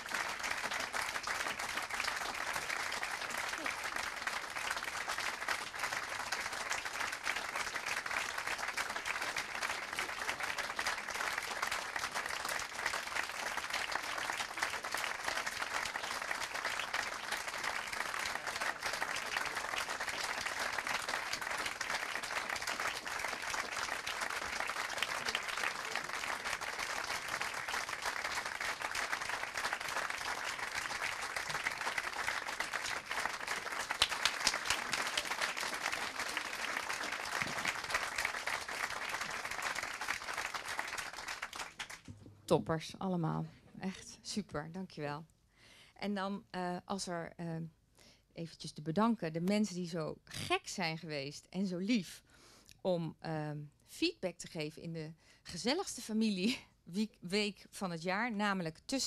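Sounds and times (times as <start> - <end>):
audience applauding: 0.0 - 42.1.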